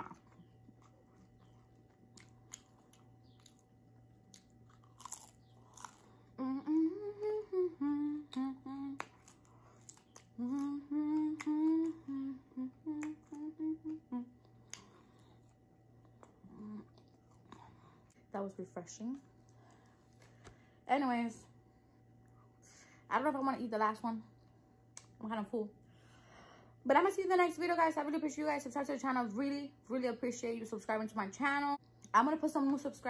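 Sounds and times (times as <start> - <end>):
woman chewing crunchy food: 0.0 - 6.4, 9.0 - 12.2
woman humming a tune: 6.4 - 9.0, 10.3 - 14.4, 16.4 - 17.0.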